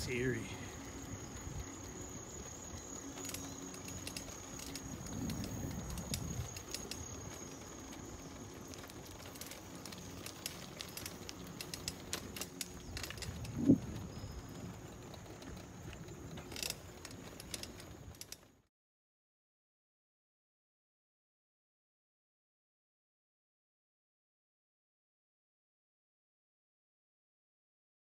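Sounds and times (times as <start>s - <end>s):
bicycle rattling and clicking: 0.0s - 18.7s.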